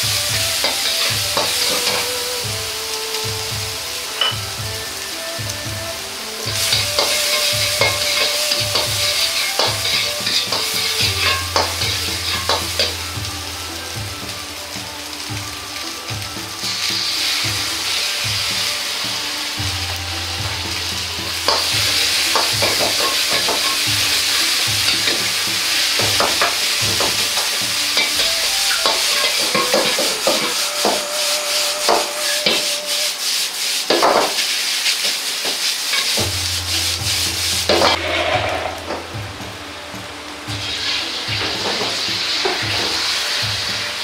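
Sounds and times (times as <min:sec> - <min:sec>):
metal ladle scraping wok: 0:00.0 - 0:02.2, 0:06.2 - 0:39.3
rice sizzling in wok: 0:00.0 - 0:44.0.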